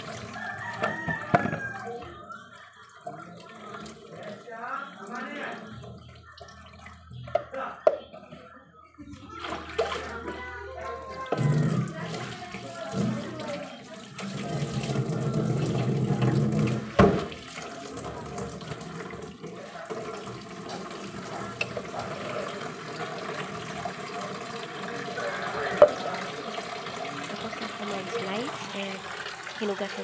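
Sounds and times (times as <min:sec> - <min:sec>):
water sloshing and splashing: 0:09.1 - 0:19.6.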